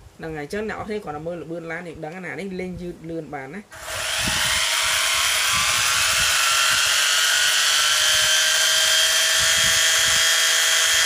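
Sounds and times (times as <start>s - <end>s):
electric motor whining: 3.7s - 11.0s.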